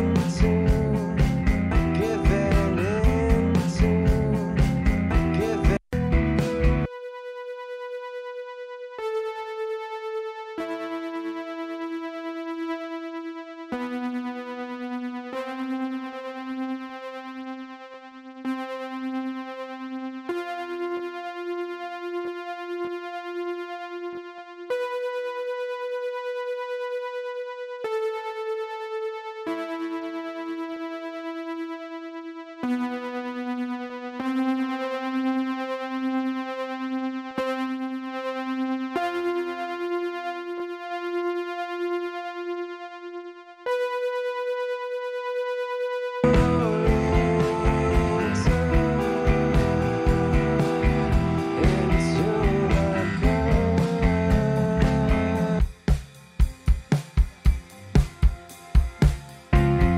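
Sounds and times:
synth keyboard chords: 0:00.0 - 0:59.9.

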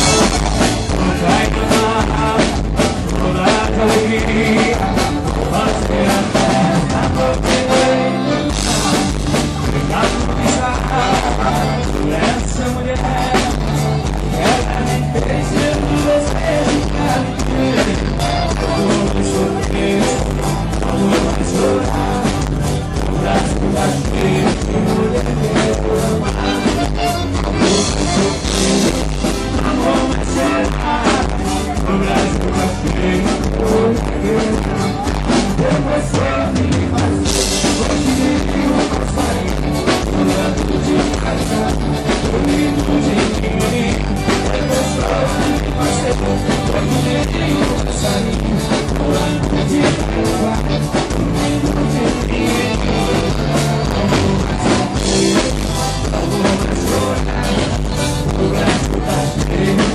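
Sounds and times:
live band music: 0:00.0 - 0:59.9
steady drum beat: 0:00.0 - 0:59.9.

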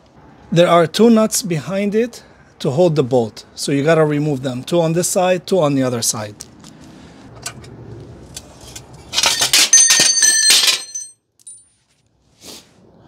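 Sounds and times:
loud metallic clatter: 0:09.1 - 0:11.1.

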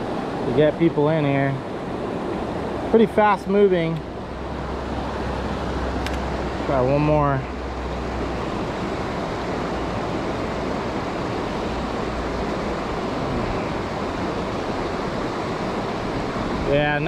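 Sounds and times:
creek water rushing over rocks: 0:00.0 - 0:17.0.

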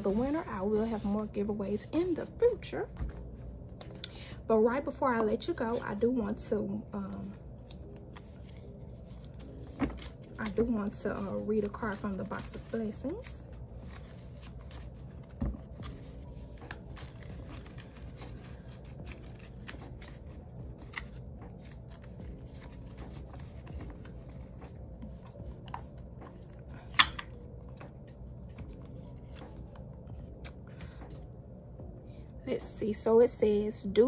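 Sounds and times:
paper and card rustling: 0:04.9 - 0:31.0.

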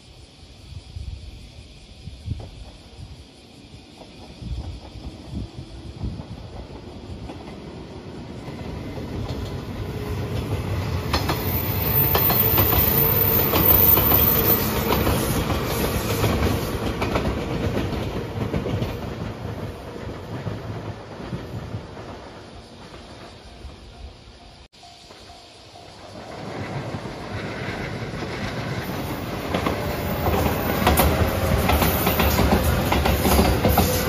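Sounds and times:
electric train rumble: 0:00.0 - 0:34.0
wheels clacking over rail joints: 0:26.1 - 0:34.0.

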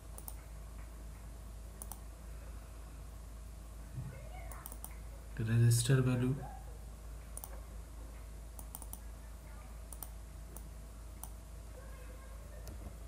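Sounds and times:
faint low hum: 0:00.0 - 0:13.0
computer mouse clicks: 0:00.1 - 0:00.5, 0:01.8 - 0:02.0, 0:04.5 - 0:05.0, 0:07.4 - 0:07.6, 0:08.6 - 0:09.1, 0:09.9 - 0:11.4
keyboard clicks: 0:00.1 - 0:00.9, 0:01.8 - 0:02.0, 0:04.5 - 0:05.0, 0:07.4 - 0:07.6, 0:08.6 - 0:09.1, 0:09.9 - 0:11.4.

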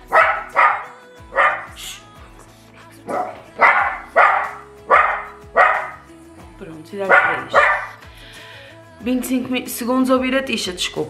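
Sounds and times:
dog barking: 0:00.0 - 0:01.9, 0:03.0 - 0:06.0, 0:07.1 - 0:08.0.

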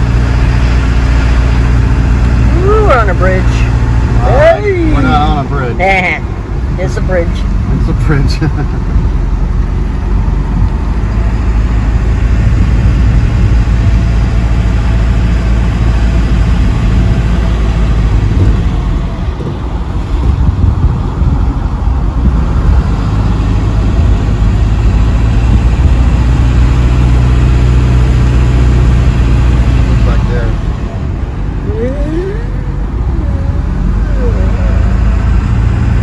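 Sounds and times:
truck engine and road noise: 0:00.0 - 0:36.0.

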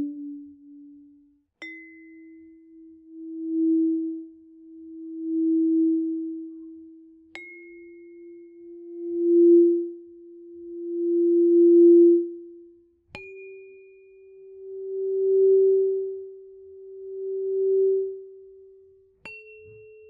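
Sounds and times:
tuning forks ringing: 0:07.4 - 0:12.4, 0:13.2 - 0:20.0.

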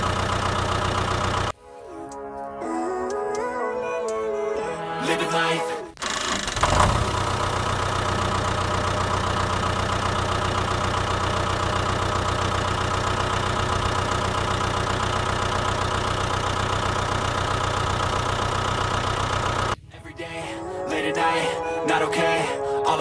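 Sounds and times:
tractor engine idling: 0:00.0 - 0:02.4, 0:05.9 - 0:21.7.

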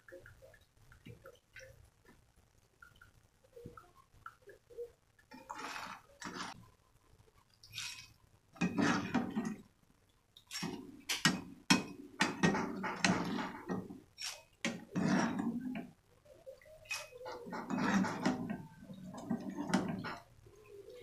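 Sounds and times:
strainer scraping a pan: 0:05.4 - 0:06.6, 0:07.8 - 0:09.6, 0:10.5 - 0:15.9, 0:16.9 - 0:20.3
oil sizzling: 0:10.3 - 0:21.0.

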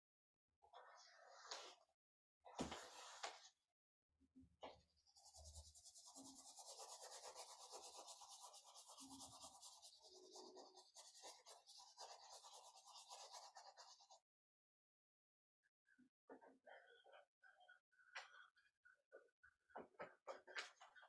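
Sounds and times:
drawing tool scratching paper: 0:05.0 - 0:14.2.

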